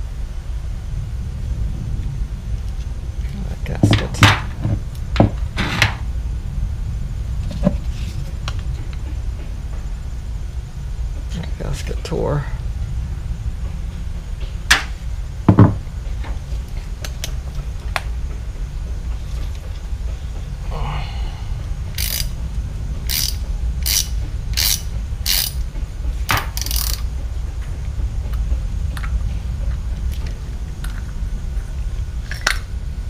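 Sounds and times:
hand ratchet clicking: 0:21.9 - 0:22.4, 0:23.0 - 0:25.6, 0:26.3 - 0:27.1.

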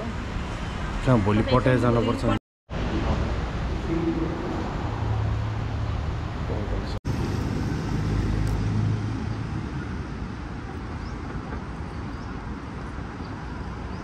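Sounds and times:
background hum of traffic: 0:00.0 - 0:14.0.

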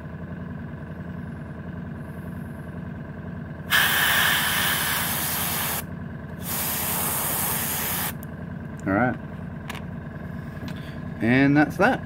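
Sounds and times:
compressor motor hum: 0:00.0 - 0:12.0
airbrush hissing air: 0:03.7 - 0:08.2.

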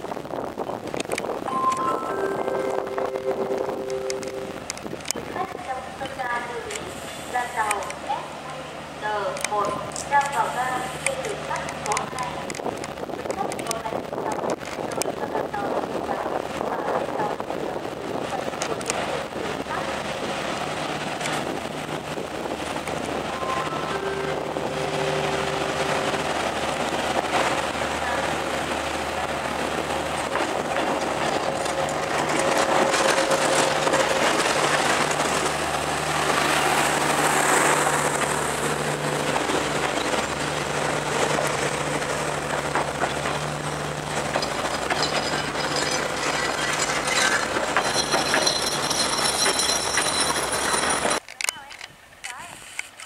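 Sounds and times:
train coaches rumbling: 0:00.0 - 0:51.8
wheels clicking over rail joints: 0:00.8 - 0:08.3, 0:09.0 - 0:53.0
diesel engine hum: 0:15.4 - 0:51.2
wheel squeal: 0:44.2 - 0:51.2.

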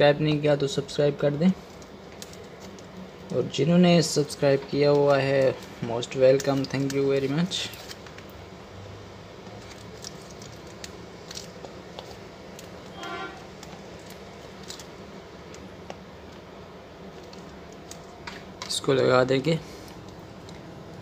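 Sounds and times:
short high tone: 0:13.0 - 0:13.4.

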